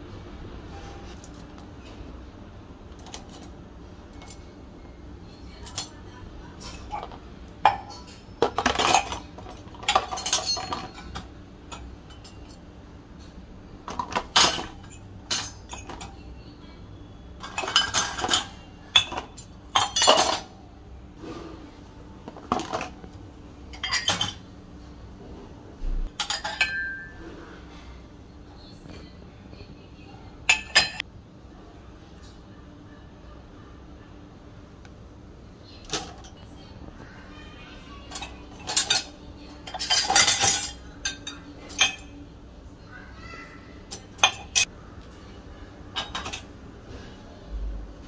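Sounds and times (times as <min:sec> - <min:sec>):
cutlery and mugs clinking: 0:06.6 - 0:12.6, 0:13.9 - 0:16.2, 0:17.4 - 0:20.5, 0:23.7 - 0:24.4, 0:26.1 - 0:27.3, 0:30.5 - 0:31.0, 0:38.1 - 0:42.2, 0:43.9 - 0:44.7, 0:46.0 - 0:46.5.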